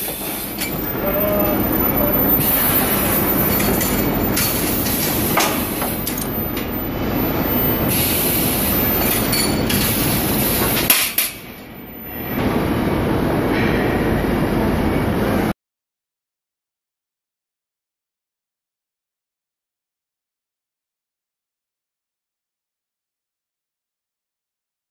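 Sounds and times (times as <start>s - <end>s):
machinery clattering: 0.0s - 14.4s.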